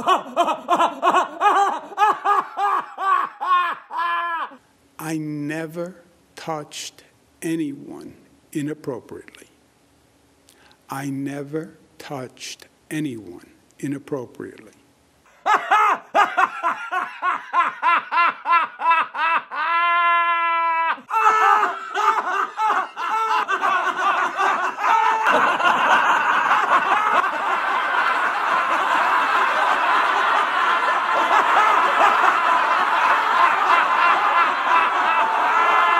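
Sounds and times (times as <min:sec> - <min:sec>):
man's belly laughter: 0:00.0 - 0:04.6, 0:15.4 - 0:35.9
overlapping laughter: 0:00.0 - 0:04.6, 0:15.3 - 0:35.9.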